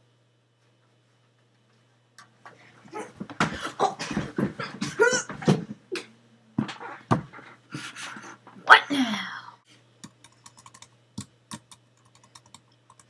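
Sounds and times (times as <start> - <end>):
person crying out: 4.8 - 5.5.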